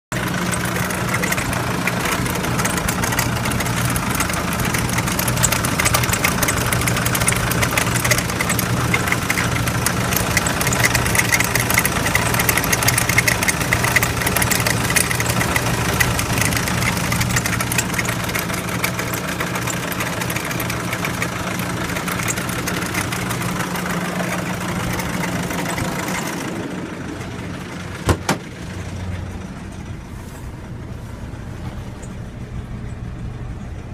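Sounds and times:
diesel engine idling: 0:00.1 - 0:33.9
sharp thump: 0:28.0 - 0:28.6.

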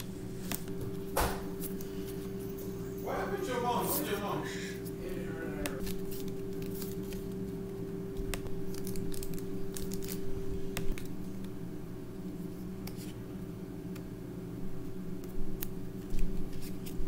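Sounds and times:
cards being handled: 0:00.0 - 0:02.9, 0:04.8 - 0:11.6, 0:12.3 - 0:14.1, 0:15.2 - 0:17.0
foil wrapper crinkling and tearing: 0:05.8 - 0:07.4, 0:08.2 - 0:11.2.

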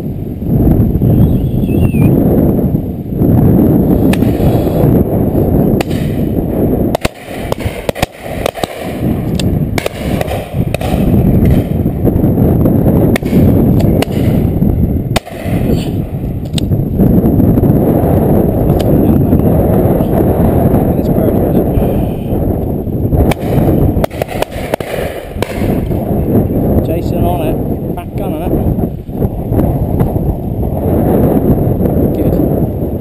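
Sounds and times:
wind buffeting microphone: 0:00.0 - 0:33.0
sharp cracks: 0:04.1 - 0:04.6, 0:05.7 - 0:12.0, 0:13.1 - 0:16.8, 0:23.2 - 0:26.1.

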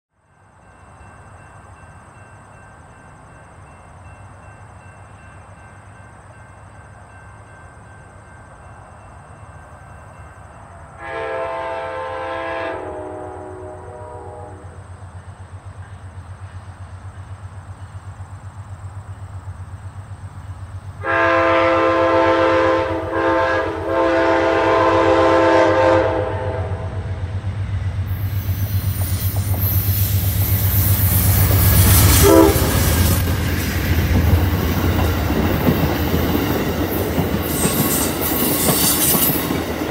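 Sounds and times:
train rumbling: 0:00.2 - 0:39.9
locomotive air horn blasts: 0:11.0 - 0:14.8, 0:21.0 - 0:27.0, 0:31.8 - 0:33.2.

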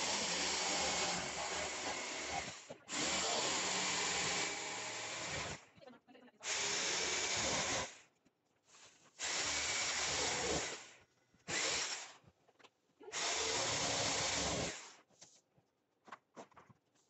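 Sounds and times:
jigsaw cutting: 0:00.0 - 0:05.6, 0:06.4 - 0:08.0, 0:09.2 - 0:12.2, 0:13.1 - 0:15.0.

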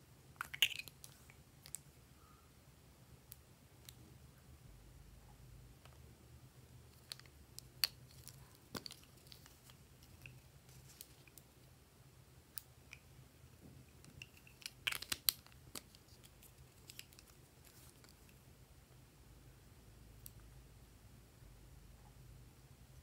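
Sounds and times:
plastic tubes clicking: 0:00.4 - 0:01.8, 0:14.0 - 0:17.4.

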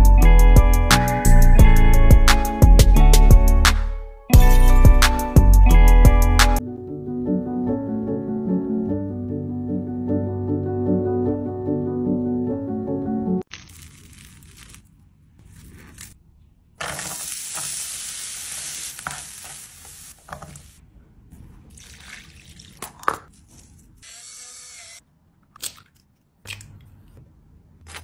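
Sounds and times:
food sizzling in a frying pan: 0:16.9 - 0:20.8.

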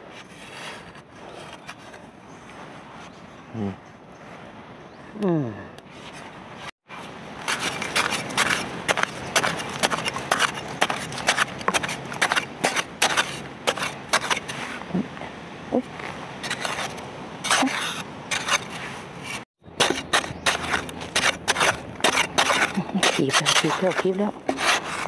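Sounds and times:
spade chopping into dry soil: 0:07.4 - 0:14.6, 0:19.8 - 0:25.0.

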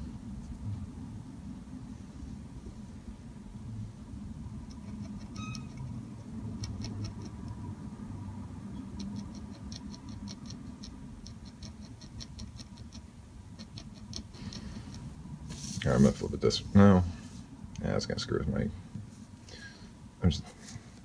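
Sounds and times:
low room hum: 0:00.0 - 0:21.0
pen nib scratching on paper: 0:04.7 - 0:05.9, 0:06.6 - 0:07.4, 0:09.0 - 0:15.0.

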